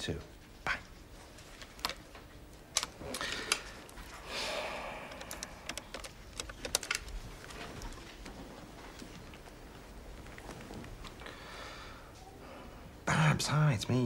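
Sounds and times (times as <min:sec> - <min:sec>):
telephone plastic clicks: 0:05.1 - 0:07.2.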